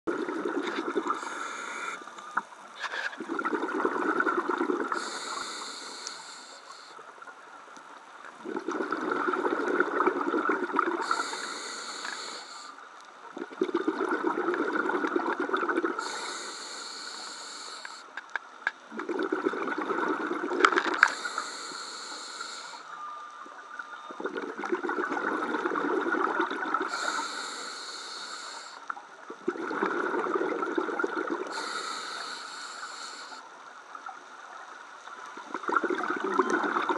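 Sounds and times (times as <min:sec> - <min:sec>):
exhaust bubbling underwater: 0:00.1 - 0:01.3, 0:03.2 - 0:05.1, 0:08.4 - 0:11.3, 0:13.3 - 0:16.1, 0:18.9 - 0:21.0, 0:24.1 - 0:27.1, 0:29.3 - 0:31.6, 0:35.4 - 0:36.9
regulator inhale hiss: 0:01.0 - 0:02.2, 0:04.8 - 0:07.2, 0:11.0 - 0:13.0, 0:16.0 - 0:18.2, 0:20.9 - 0:23.1, 0:26.8 - 0:29.0, 0:31.4 - 0:33.6.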